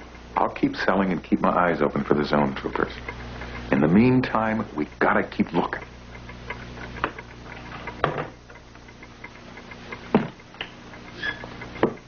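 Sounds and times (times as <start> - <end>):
faint regular ticking: 0.0 - 12.0
knocks in wooden cabinet: 8.0 - 8.4, 10.1 - 10.4.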